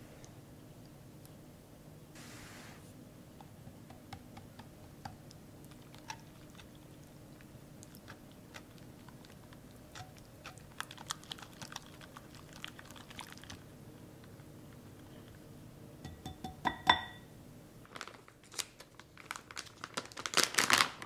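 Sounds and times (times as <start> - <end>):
whisk squelching batter: 7.8 - 13.7.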